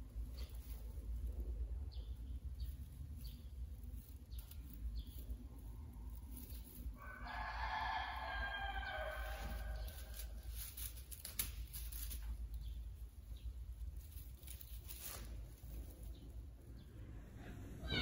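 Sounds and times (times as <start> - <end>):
rooster crowing: 7.0 - 9.9, 17.4 - 18.0
broom bristles crackling: 8.1 - 18.0
steady low hum: 11.7 - 18.0.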